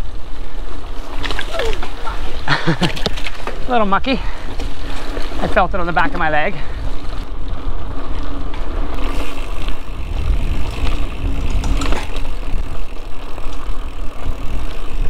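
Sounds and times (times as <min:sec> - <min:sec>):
bike rattling: 0:00.0 - 0:15.0
tyres on dirt trail: 0:00.0 - 0:15.0
sharp bike clatter: 0:08.1 - 0:15.0
wind on microphone: 0:08.7 - 0:13.0.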